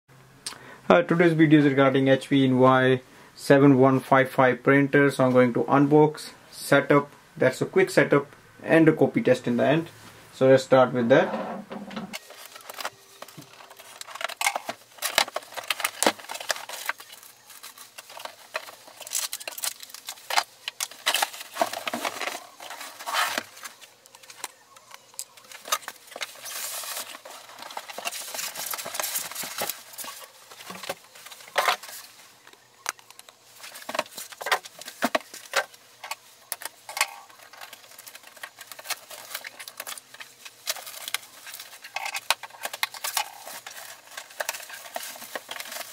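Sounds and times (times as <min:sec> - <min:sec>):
cardboard and plastic rustling: 0:11.2 - 0:45.9.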